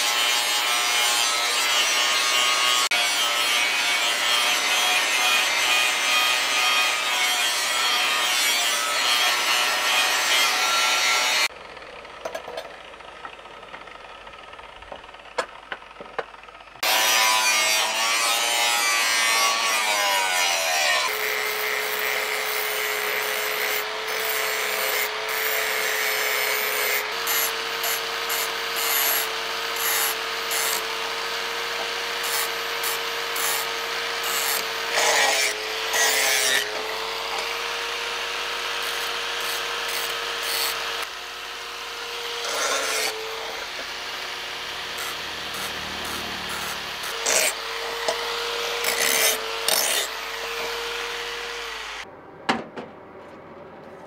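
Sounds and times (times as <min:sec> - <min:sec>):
angle grinder grinding steel: 0:00.0 - 0:11.6, 0:16.8 - 0:52.1.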